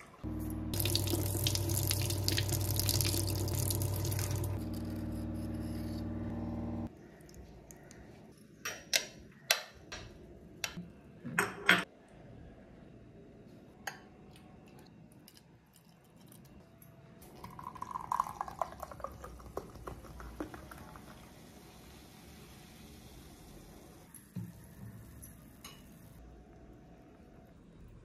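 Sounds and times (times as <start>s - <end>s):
tap water running into sink: 0.8s - 4.6s, 17.6s - 21.4s.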